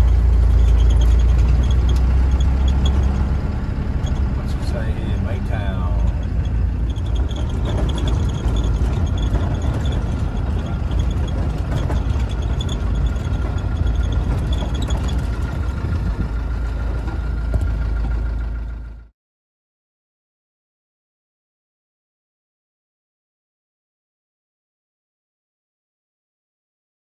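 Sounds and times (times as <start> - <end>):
tyre and rattle noise: 0.0 - 4.8, 5.6 - 18.6
engine and drivetrain drone: 0.0 - 19.1.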